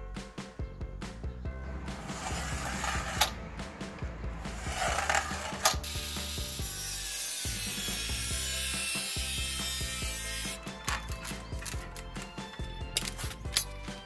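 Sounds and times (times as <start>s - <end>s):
angle grinder cutting metal: 2.0s - 3.4s, 4.5s - 10.8s
scriber scratching metal: 2.0s - 3.4s, 4.6s - 11.1s.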